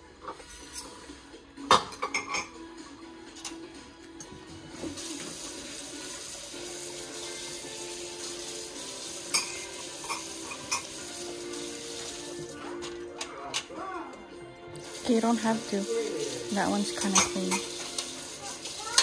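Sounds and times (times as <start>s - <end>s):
dishes clinking: 1.7s - 2.6s, 9.2s - 11.2s, 16.9s - 18.2s, 18.8s - 19.0s
water running into sink: 4.8s - 13.0s, 14.8s - 19.0s.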